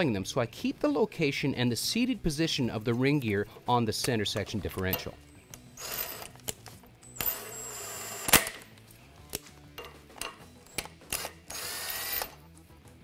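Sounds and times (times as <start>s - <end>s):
metallic clicks of bolts and tool: 9.3s - 11.4s.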